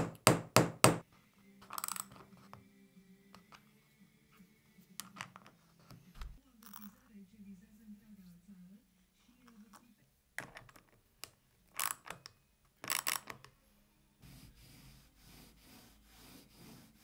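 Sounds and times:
steel ball bearings clicking: 0:11.7 - 0:13.4
wooden jig rubbing on board: 0:14.2 - 0:17.0.

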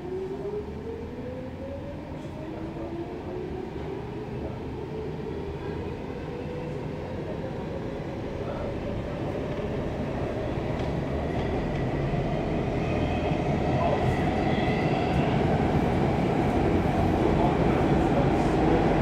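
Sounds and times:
train running gear rumble: 0:09.3 - 0:13.1.

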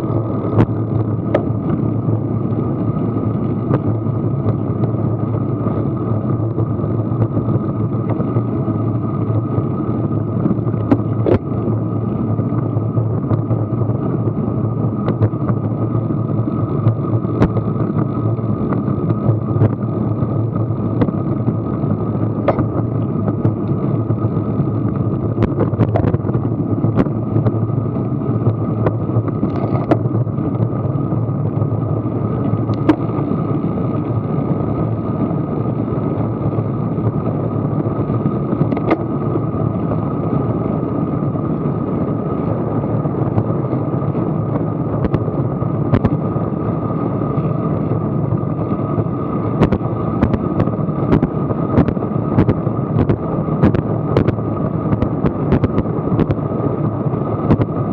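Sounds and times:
road noise: 0:00.0 - 0:57.9
wind rush: 0:00.0 - 0:57.9
sharp clicks and knocks: 0:22.4 - 0:23.8, 0:28.8 - 0:30.7, 0:38.6 - 0:39.0.

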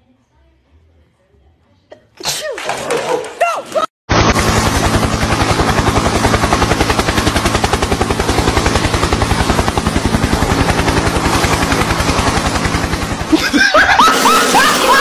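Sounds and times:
helicopter rotor chopping: 0:04.1 - 0:15.0.

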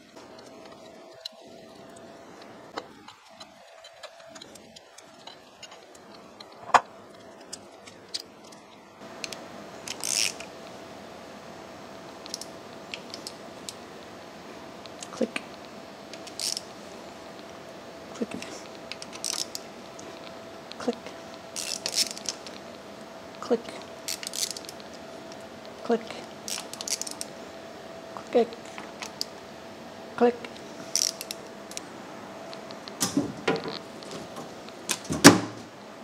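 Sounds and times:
faint steady hum: 0:00.0 - 0:36.0.

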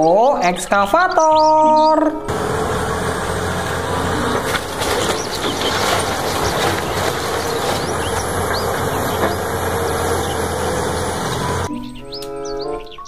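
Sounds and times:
excavator diesel engine running: 0:02.3 - 0:11.7
breaking timber cracks: 0:03.6 - 0:11.7.

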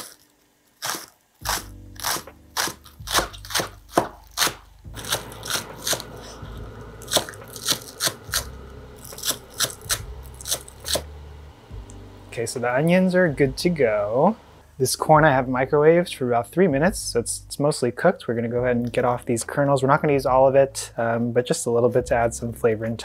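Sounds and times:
knife chopping on cutting board: 0:00.9 - 0:11.1
low steady hum: 0:01.4 - 0:23.0.

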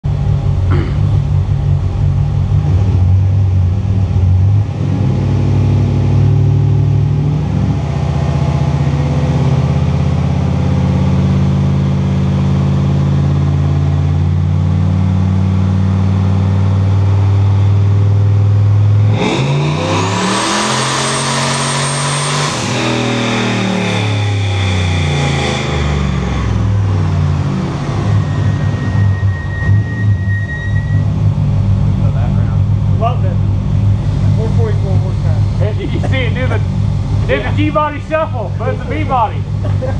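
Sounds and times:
car engine revving under load: 0:00.1 - 0:39.9
turbo whistle: 0:28.1 - 0:31.1.

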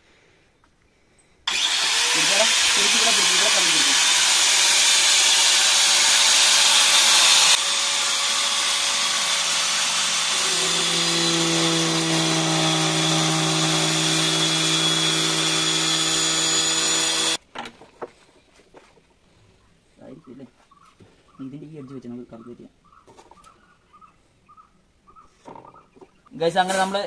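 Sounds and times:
power tool whine: 0:01.5 - 0:17.4.

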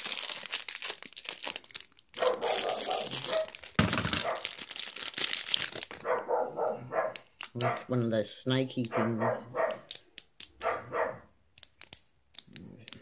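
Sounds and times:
plastic bag crinkling: 0:00.0 - 0:06.3.

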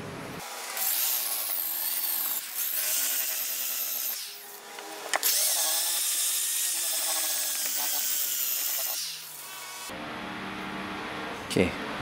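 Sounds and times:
sped-up electric polisher sanding: 0:00.4 - 0:09.9.

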